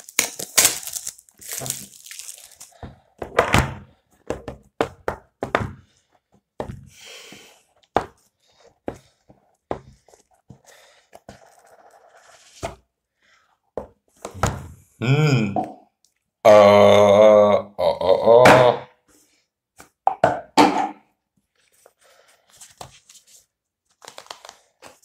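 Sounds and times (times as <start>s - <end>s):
man humming or grunting: 15.0s - 15.8s, 16.4s - 18.9s.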